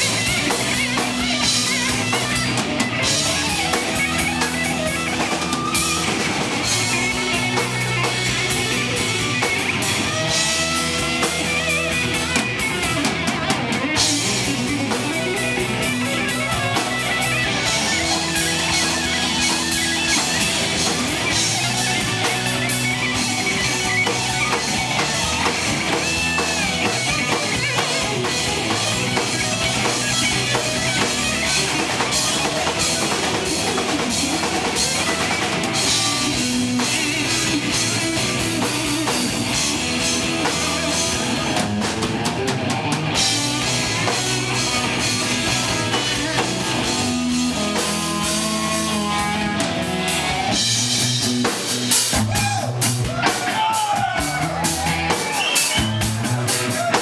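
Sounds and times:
drum kit with cymbal strikes: 0.0 - 57.0
electric guitar: 0.0 - 57.0.

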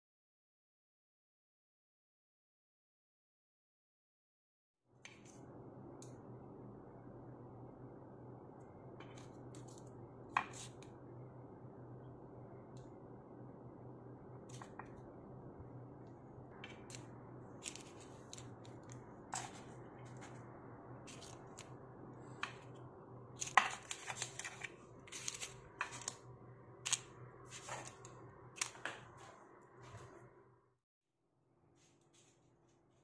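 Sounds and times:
steady low hum: 5.0 - 30.8
parchment paper crinkling: 16.6 - 22.7, 23.3 - 29.2.

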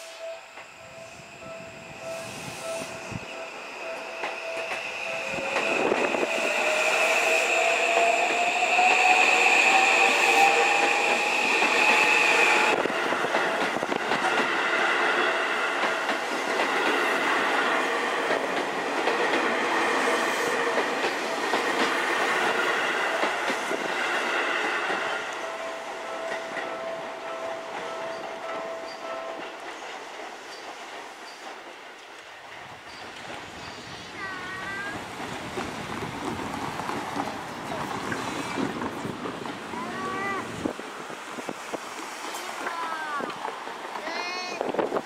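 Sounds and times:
electric train motor whine: 0.0 - 13.2
steady high tone: 0.0 - 14.4, 16.8 - 29.5
train wheels clattering on rails: 0.0 - 45.0.

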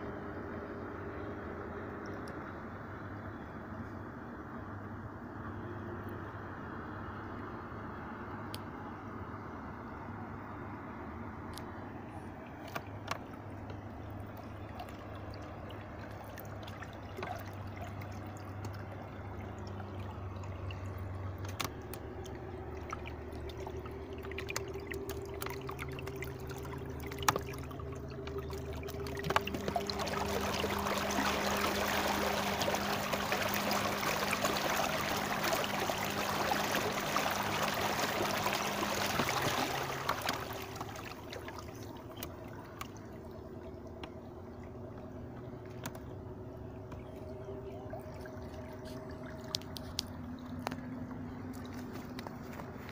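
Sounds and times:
water rushing past boat: 8.7 - 52.9
electric trolling motor humming: 11.6 - 52.9.

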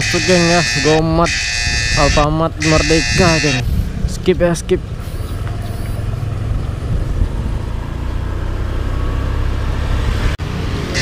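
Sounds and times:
motor scooter engine rumble: 0.0 - 11.0
wind on microphone: 0.8 - 7.8.

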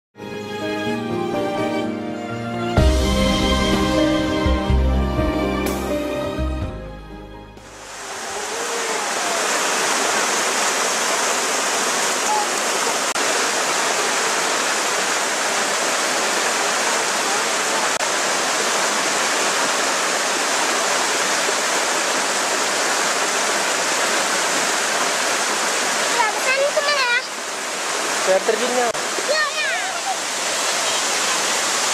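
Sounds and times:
water rushing over rocks: 7.6 - 31.9.

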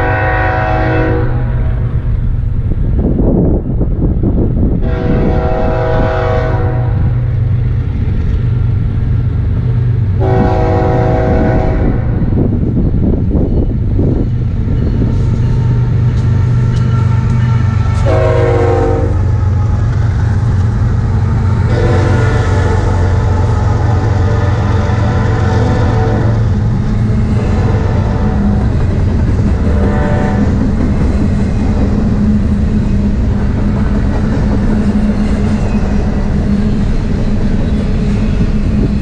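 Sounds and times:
locomotive air horn blasts: 0.0 - 1.8, 4.8 - 7.2, 10.2 - 12.3, 17.5 - 19.3, 21.7 - 26.5, 27.5 - 28.7, 29.7 - 30.6
locomotive engines droning: 0.0 - 39.0.

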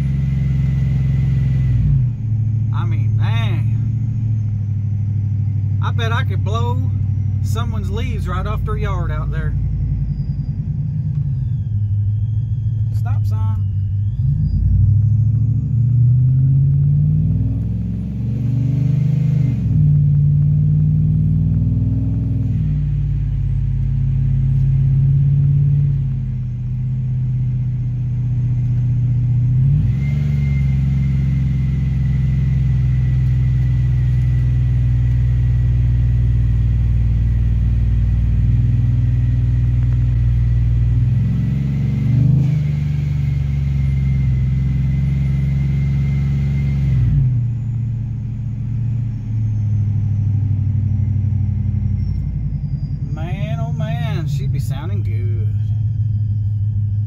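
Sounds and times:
engine rumbling: 0.0 - 57.0
faint high whine: 47.5 - 57.0.

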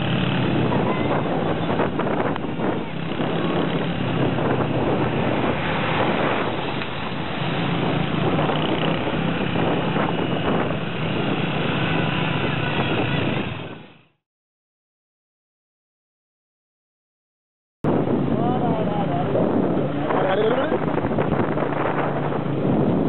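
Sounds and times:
wind buffeting on microphone: 0.0 - 14.1, 17.8 - 23.0.

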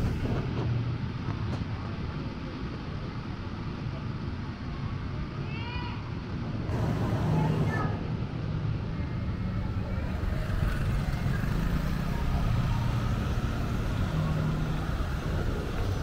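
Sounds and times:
cars passing: 0.0 - 1.2, 6.5 - 16.0
motorcycle and scooter engines: 0.0 - 3.6, 6.6 - 16.0.

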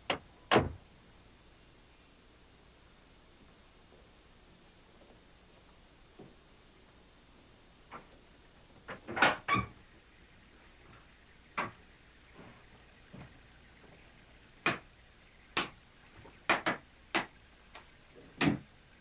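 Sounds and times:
sharp knocks and clicks: 11.6 - 11.8, 14.6 - 14.9, 15.6 - 15.8, 16.4 - 18.7.

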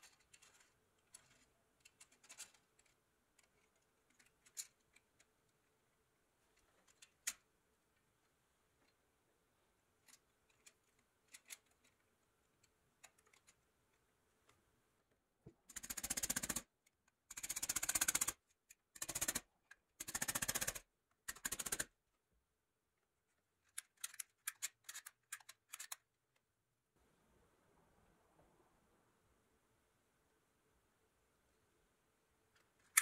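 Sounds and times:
clockwork toy clicking rapidly: 15.7 - 16.7, 17.3 - 18.4, 19.0 - 21.9.

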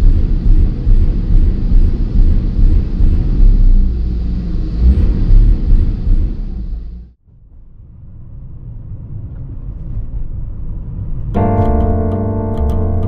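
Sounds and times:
car engine rumble from inside: 0.0 - 12.9
piano music with ticking beat: 11.4 - 13.0.

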